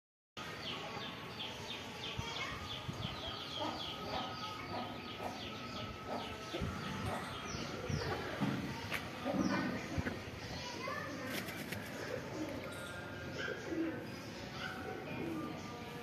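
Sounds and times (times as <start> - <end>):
chicks peeping: 3.0 - 8.6
chickens clucking: 3.3 - 12.7.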